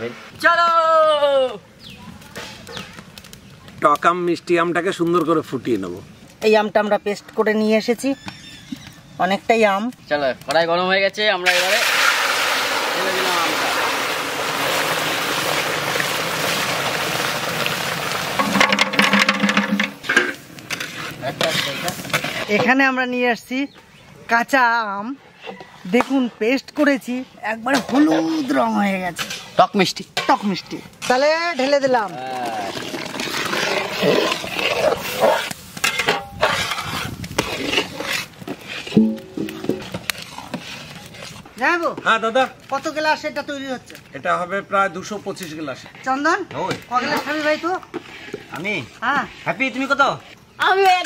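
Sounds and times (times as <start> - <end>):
paste sizzling in a wok: 11.4 - 22.6, 27.7 - 42.2, 46.9 - 50.5
metal ladle scraping a wok: 18.4 - 22.6, 27.8 - 31.8, 32.6 - 41.5, 47.1 - 48.6.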